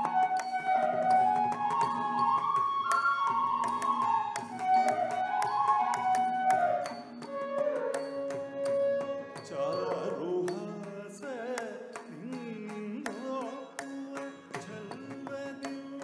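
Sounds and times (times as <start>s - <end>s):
person singing ornamented phrases: 8.6s - 16.0s.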